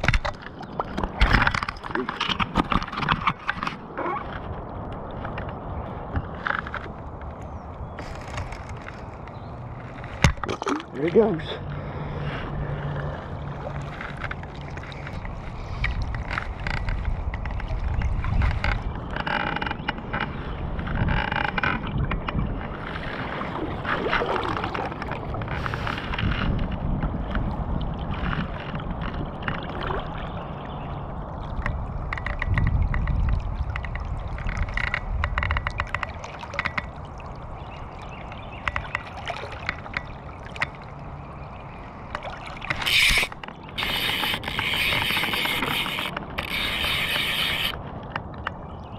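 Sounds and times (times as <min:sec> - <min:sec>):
river water sloshing and gurgling: 0:00.0 - 0:48.9
wind rumble: 0:11.4 - 0:38.9
fly reel clicking: 0:42.8 - 0:47.8.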